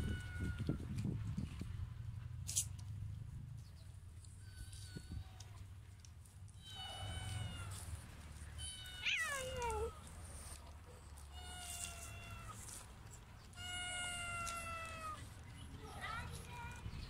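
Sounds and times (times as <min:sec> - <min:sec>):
cat meowing: 0:06.6 - 0:07.8, 0:08.6 - 0:10.0, 0:13.6 - 0:15.2.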